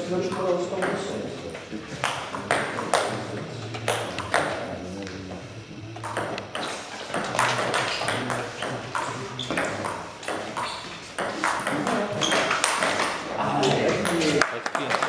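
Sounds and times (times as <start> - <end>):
ping pong ball hitting bats: 0.0 - 1.3, 1.9 - 15.0
ping pong ball bouncing on table: 0.2 - 1.2, 2.0 - 3.2, 3.8 - 5.2, 6.0 - 13.2, 13.9 - 15.0.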